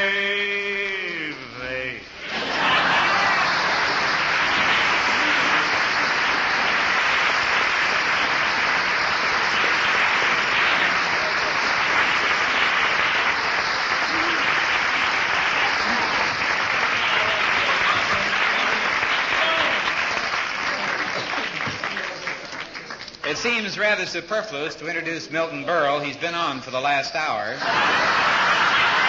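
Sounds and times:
audience applauding: 0:02.2 - 0:23.9, 0:27.6 - 0:29.0.

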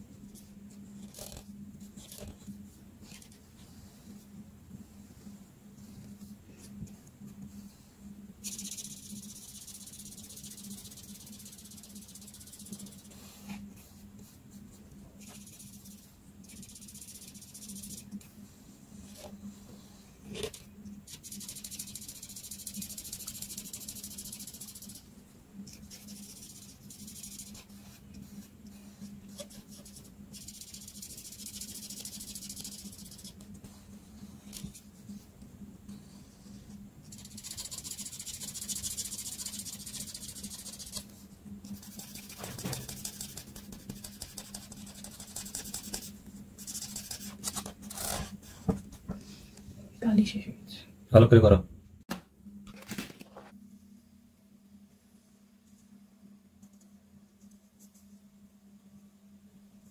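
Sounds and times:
faint low hum: 0:00.0 - 0:59.9
marker stroking on paper: 0:00.4 - 0:18.4, 0:20.5 - 0:35.3, 0:35.9 - 0:48.6.

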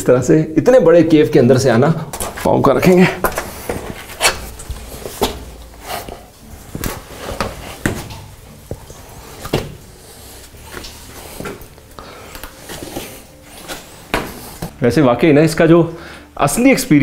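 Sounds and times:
footsteps on wet rock: 0:02.1 - 0:14.7.

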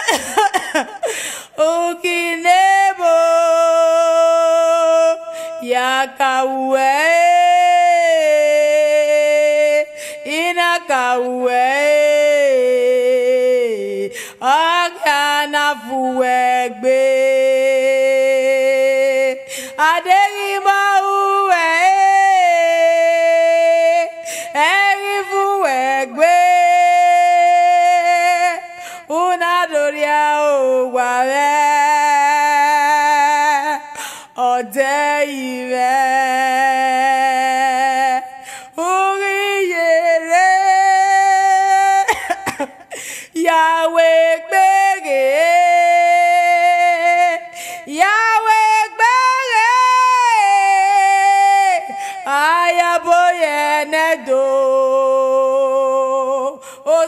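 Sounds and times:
woman wailing a sung lament: 0:00.0 - 0:02.0, 0:38.9 - 0:47.2
woman singing long notes: 0:01.5 - 0:57.0.

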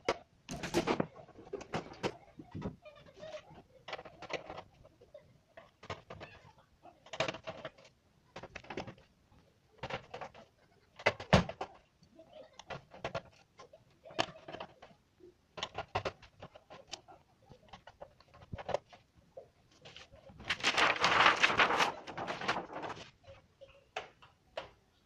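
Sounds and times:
plastic sheet rustling scrape: 0:19.8 - 0:23.2.

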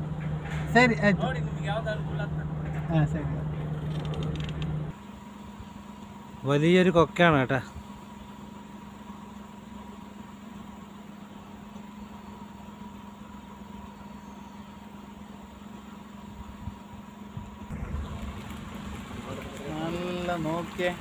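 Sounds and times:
car engine and road noise: 0:00.0 - 0:21.0
faint steady tone: 0:04.9 - 0:18.2.

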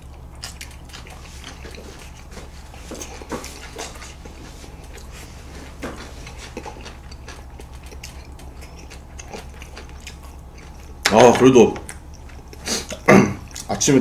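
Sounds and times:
chewing: 0:00.0 - 0:13.8
steady low hum: 0:00.0 - 0:14.0.

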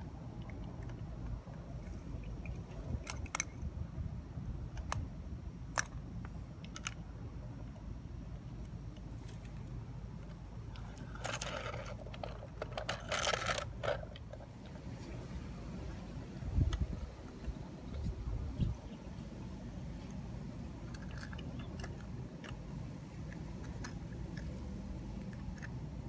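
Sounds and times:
toy rattling over dirt: 0:00.3 - 0:03.7, 0:09.0 - 0:15.2, 0:20.1 - 0:26.0.

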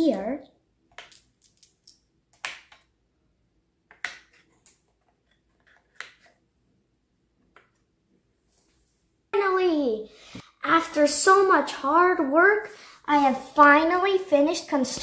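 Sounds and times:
marbles clicking into wooden holder: 0:00.9 - 0:02.8.

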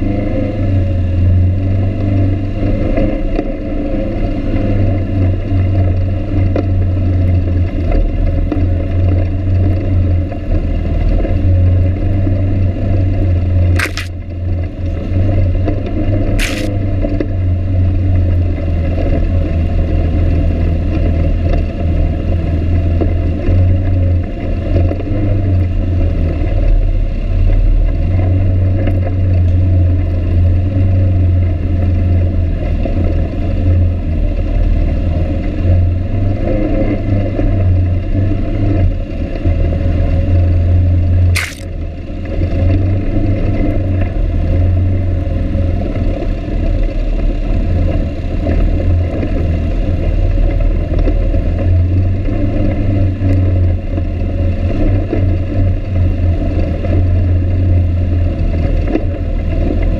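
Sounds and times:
all-terrain vehicle engine running: 0:00.0 - 0:59.9
rattle and scrape over rocks: 0:13.6 - 0:14.4, 0:15.6 - 0:17.3, 0:41.3 - 0:41.8.

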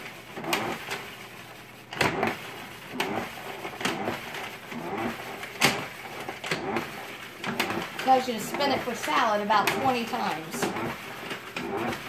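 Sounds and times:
salad spinner whirring: 0:00.0 - 0:12.0.

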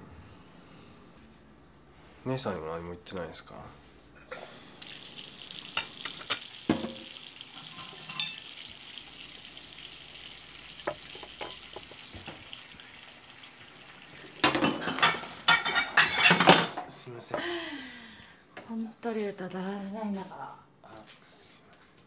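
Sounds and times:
tap running into a sink: 0:04.8 - 0:12.9
dishes clattering: 0:05.7 - 0:08.6, 0:10.1 - 0:12.4, 0:14.4 - 0:16.9
dishes clinking: 0:05.7 - 0:08.6, 0:10.0 - 0:12.3, 0:14.3 - 0:16.9.

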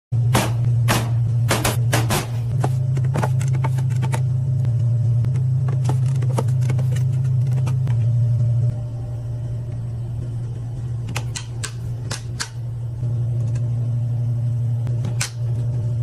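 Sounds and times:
steady low hum: 0:00.1 - 0:16.0.

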